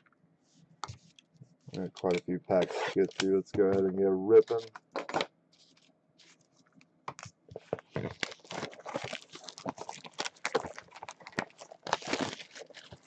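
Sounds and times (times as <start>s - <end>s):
plastic shrink-wrap crinkling: 1.7s - 3.4s, 7.6s - 13.0s.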